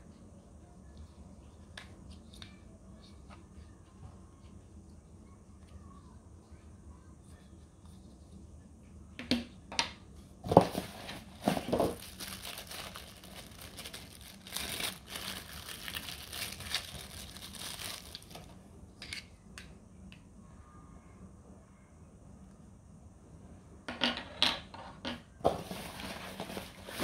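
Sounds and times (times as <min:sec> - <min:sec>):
plastic bag crinkling: 0:10.5 - 0:18.5, 0:25.6 - 0:27.0.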